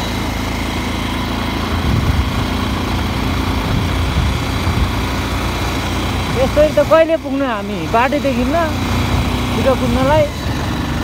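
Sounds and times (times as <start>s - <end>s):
motorcycle engine running: 0.0s - 11.0s
wind noise on microphone: 1.7s - 5.5s.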